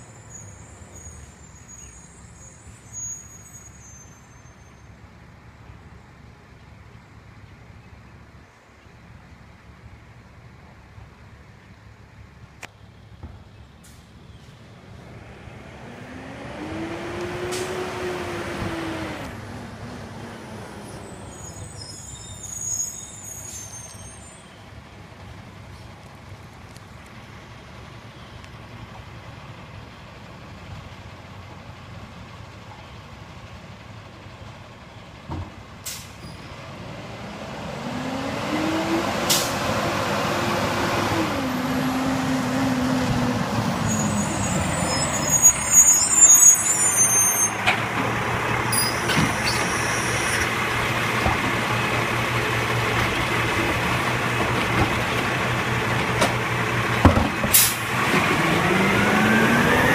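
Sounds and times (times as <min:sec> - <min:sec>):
diesel truck engine: 0:00.0 - 0:59.9
air brakes hissing: 0:21.3 - 0:24.6, 0:35.8 - 0:36.4, 0:57.5 - 0:57.9
side arm tipping cart: 0:41.1 - 0:59.5.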